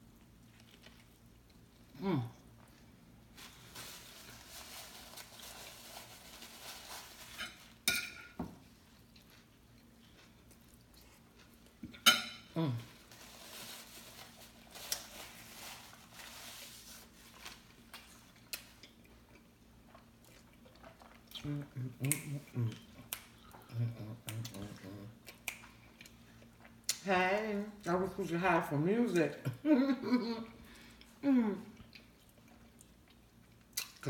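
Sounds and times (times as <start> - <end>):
person chewing: 0.2 - 2.8, 9.0 - 12.1, 17.4 - 27.0, 30.6 - 34.0.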